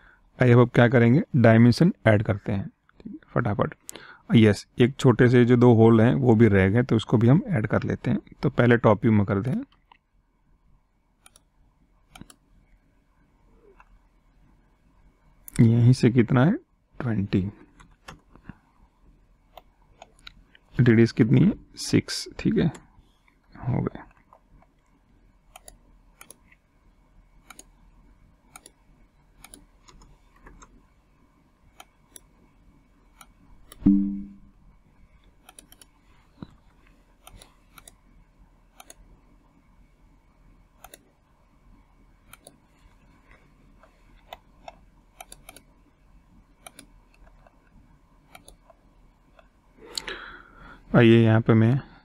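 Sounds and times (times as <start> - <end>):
faint electrical hum: 0.0 - 52.0
mouse and keyboard clicking: 12.1 - 12.4, 25.5 - 26.6, 27.4 - 27.7, 28.5 - 28.8, 29.4 - 30.8, 35.3 - 36.5, 37.2 - 38.0, 38.8 - 39.0, 40.8 - 41.1, 42.3 - 42.6, 43.8 - 45.7, 46.6 - 47.6, 48.3 - 48.8
brief low hum: 33.8 - 34.6.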